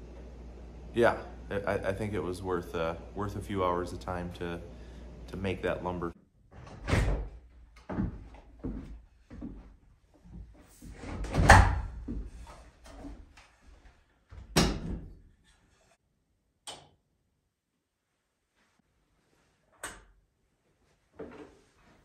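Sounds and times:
wooden door shutting with thud: 6.6s - 7.3s, 11.2s - 11.9s.

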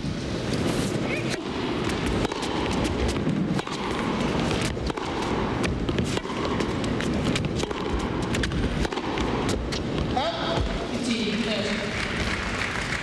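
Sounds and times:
crowd and broadcast hiss: 0.0s - 13.0s
racquet strikes: 0.5s - 11.3s
tennis ball bounces: 1.3s - 10.8s.

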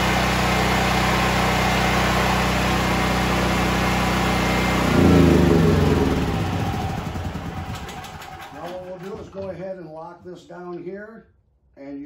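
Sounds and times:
generator engine running: 0.0s - 9.4s.

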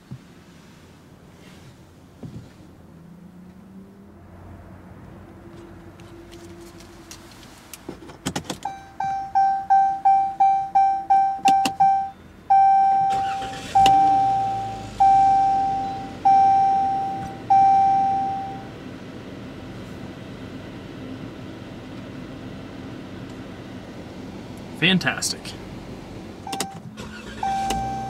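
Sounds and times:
car door opening: 6.4s - 9.3s, 26.4s - 28.0s
dashboard warning chimes: 8.6s - 18.7s, 26.4s - 28.0s.

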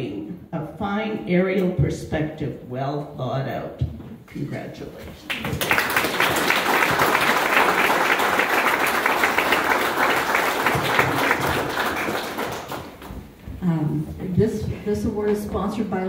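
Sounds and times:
audience applauding: 5.2s - 13.3s.

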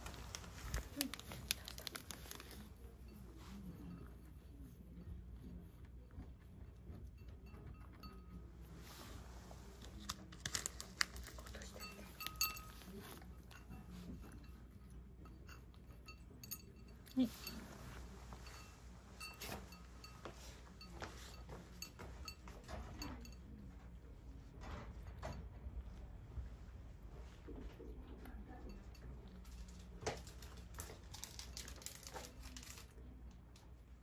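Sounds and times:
cat chewing and crunching: 0.0s - 34.0s
light clinks against bowl: 0.5s - 9.0s, 10.5s - 26.1s, 28.2s - 33.0s.

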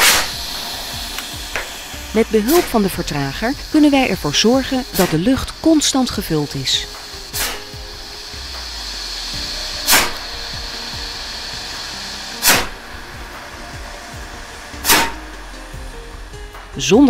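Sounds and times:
sharp fuse spits: 0.0s - 2.8s, 3.4s - 7.8s, 9.8s - 10.3s, 12.4s - 12.8s, 14.8s - 15.2s
fuse hissing: 0.0s - 17.0s.

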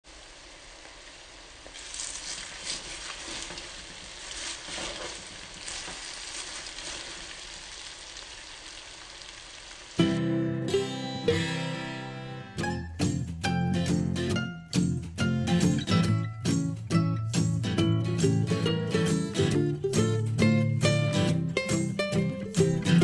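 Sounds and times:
food sizzling in hot oil: 0.0s - 10.3s
wooden spatula scraping pan: 2.2s - 7.3s
music: 10.0s - 23.0s.

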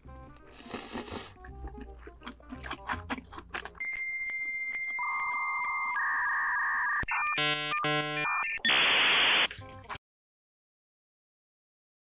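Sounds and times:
rising beep tones: 3.8s - 9.3s.

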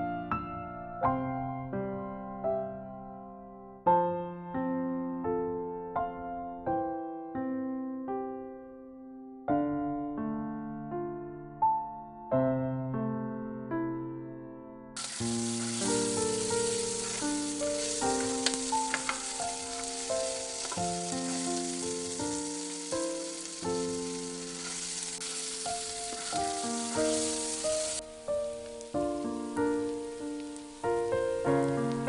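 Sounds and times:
gentle piano music: 0.0s - 32.0s
food sizzling in oil: 15.0s - 32.0s.

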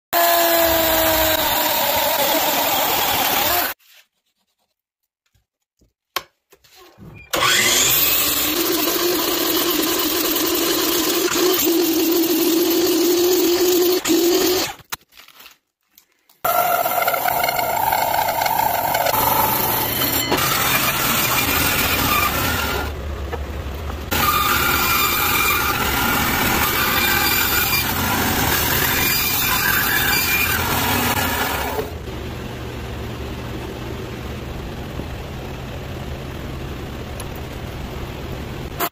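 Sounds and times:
drill press boring wood: 0.2s - 3.8s, 7.3s - 14.8s, 16.5s - 23.0s, 24.1s - 32.0s
miter saw cutting wood: 0.2s - 3.8s, 7.3s - 14.8s, 16.5s - 23.0s, 24.1s - 32.0s.

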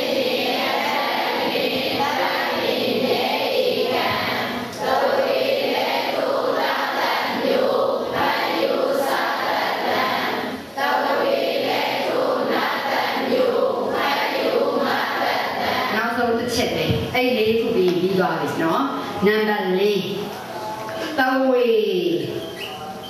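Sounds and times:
voices chanting in unison: 0.0s - 16.0s.

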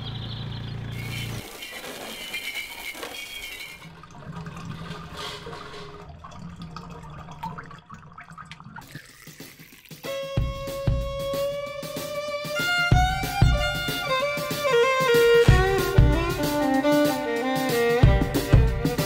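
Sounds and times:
birds chirping: 0.0s - 3.8s
liquid trickling and splashing: 1.0s - 10.4s
violin music: 10.0s - 19.0s.

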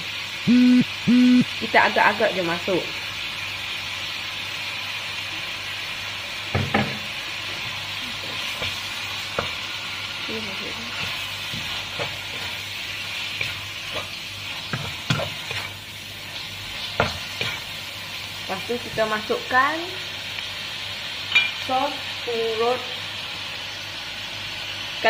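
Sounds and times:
meat sizzling in a wok: 0.0s - 25.0s
spatula knocking and scraping pan: 8.2s - 9.6s, 10.9s - 12.6s, 13.2s - 15.8s, 16.7s - 17.7s.

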